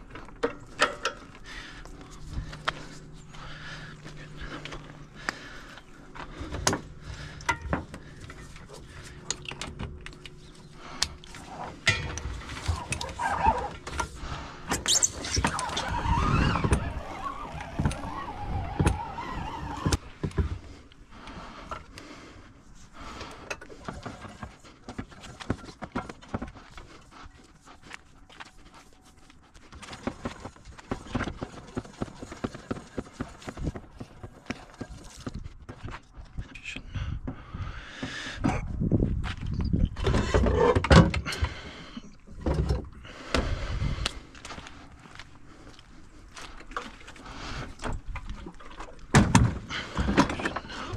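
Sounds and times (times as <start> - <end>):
hose rubbing and knocking on reel: 11.3 - 20.5, 28.5 - 35.4.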